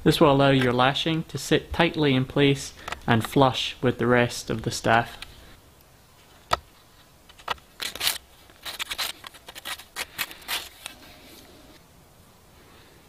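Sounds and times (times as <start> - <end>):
knife scraping wood: 7.8 - 11.4.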